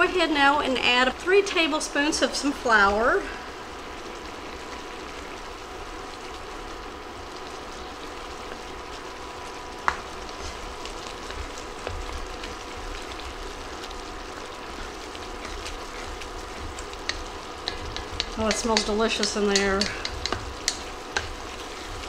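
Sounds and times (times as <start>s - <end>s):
filling sizzling and bubbling: 0.0s - 22.0s
spatula scraping pot: 14.6s - 22.0s.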